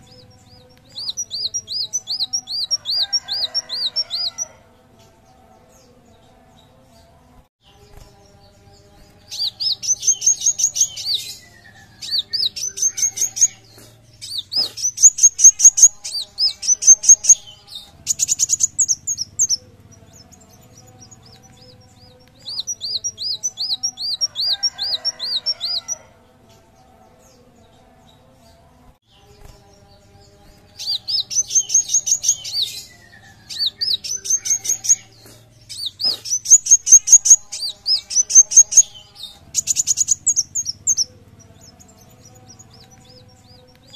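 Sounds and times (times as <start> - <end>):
sunbird singing: 0.0 - 7.0, 7.6 - 43.9.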